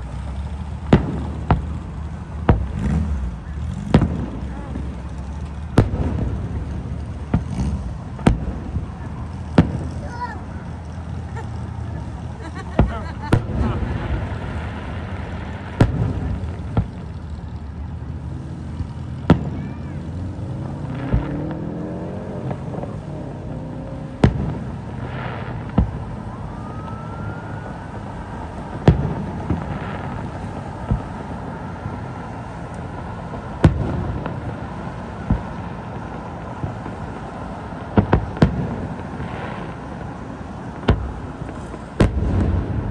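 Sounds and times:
distant fireworks bangs: 0:00.0 - 0:42.9
traffic noise: 0:00.0 - 0:42.9
engine rising in pitch: 0:20.0 - 0:24.2.

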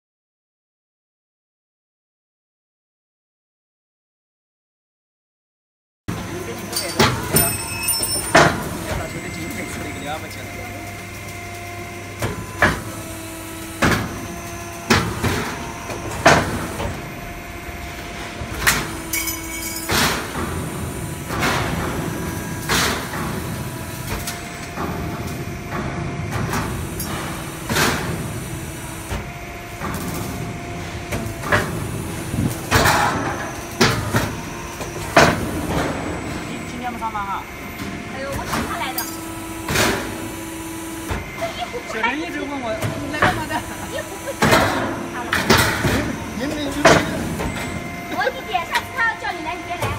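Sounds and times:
steady machine hum: 0:06.1 - 0:49.9.

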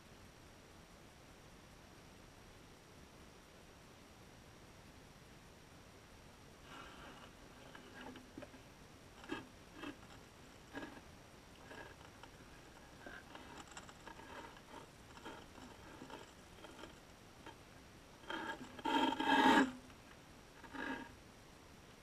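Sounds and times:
scraping against underwater housing: 0:06.7 - 0:08.6, 0:09.2 - 0:17.6, 0:18.2 - 0:20.0, 0:20.6 - 0:21.1.

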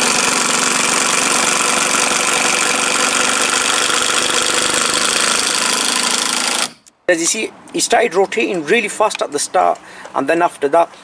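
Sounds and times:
impact driver rattling: 0:00.0 - 0:06.9.

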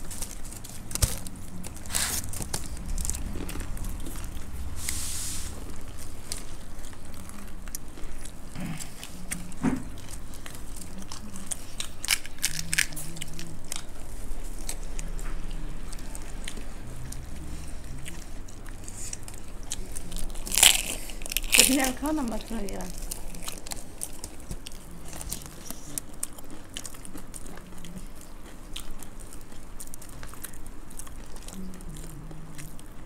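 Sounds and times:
chewing crunchy puffed rice: 0:00.0 - 0:33.0
loud crunch of crisp shell: 0:11.2 - 0:13.9, 0:20.0 - 0:22.1.

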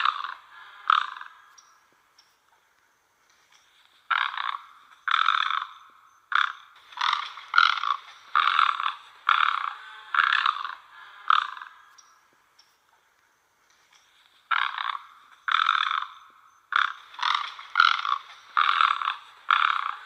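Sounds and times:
egret croaking calls: 0:00.0 - 0:01.9, 0:03.9 - 0:12.2, 0:14.2 - 0:20.0.

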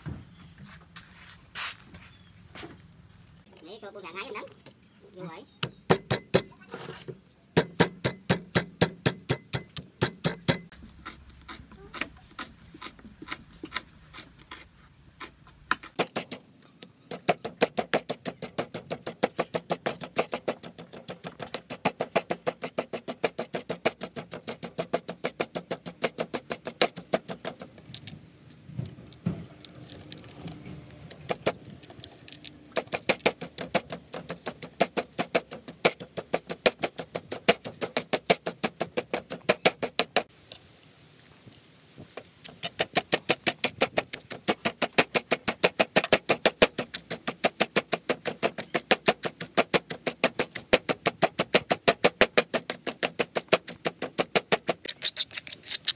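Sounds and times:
stone pestle pounding in mortar: 0:05.6 - 0:06.5, 0:07.6 - 0:10.8, 0:15.7 - 0:16.4, 0:17.1 - 0:27.7, 0:31.3 - 0:31.6, 0:32.7 - 0:40.3, 0:42.6 - 0:54.9.

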